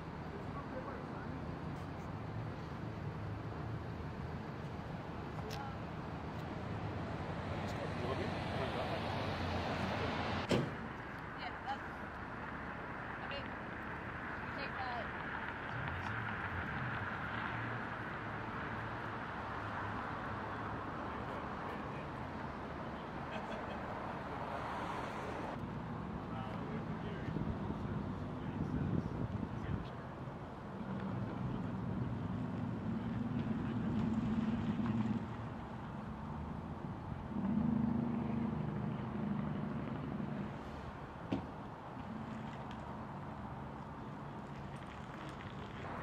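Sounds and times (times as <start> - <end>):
idling vehicle engines: 0.0 - 9.3, 20.3 - 24.0, 24.9 - 46.0
street noise hiss: 0.0 - 46.0.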